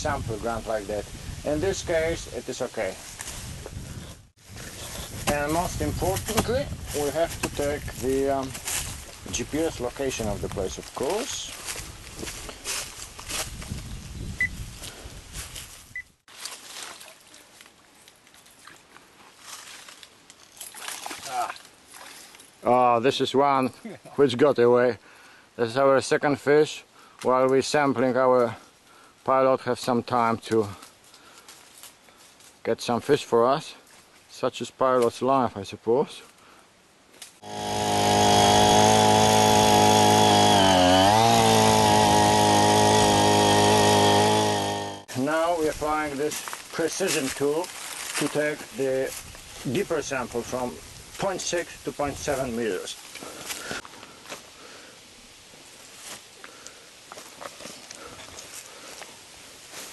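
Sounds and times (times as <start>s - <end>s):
wind buffeting microphone: 0.0s - 2.4s, 3.3s - 10.8s, 13.2s - 15.6s
rustles: 0.0s - 22.7s, 27.1s - 35.3s, 45.1s - 59.9s
faint water splashes: 16.3s - 22.6s
soil auger engine drilling: 37.4s - 45.2s.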